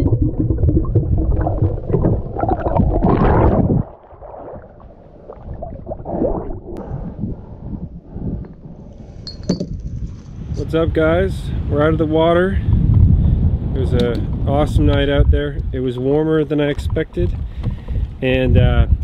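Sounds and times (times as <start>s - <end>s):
water splashing at surface: 0.0s - 6.9s
underwater gurgling and bubbling: 0.0s - 9.1s.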